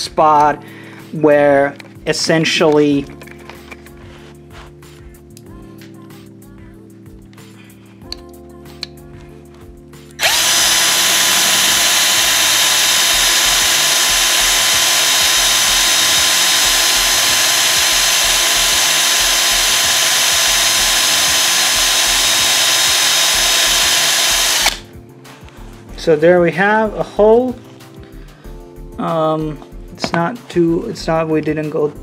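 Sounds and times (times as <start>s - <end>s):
power drill boring through fabric: 10.2s - 24.9s.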